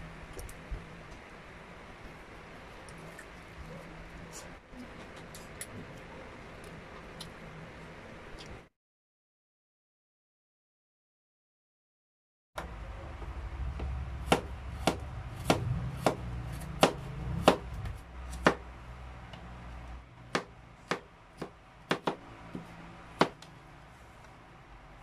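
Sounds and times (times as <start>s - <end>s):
low rumble: 12.6s - 20.7s
knife chopping on cutting board: 14.2s - 18.6s, 20.4s - 23.4s.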